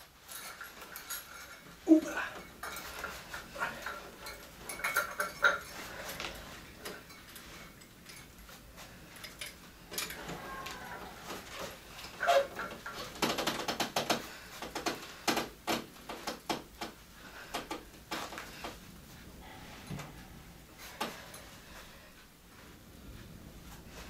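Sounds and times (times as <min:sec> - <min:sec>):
chain and weight plates clinking: 0:00.2 - 0:13.7
heavy breathing: 0:01.8 - 0:07.8, 0:17.0 - 0:22.8
man grunting: 0:01.9 - 0:02.4.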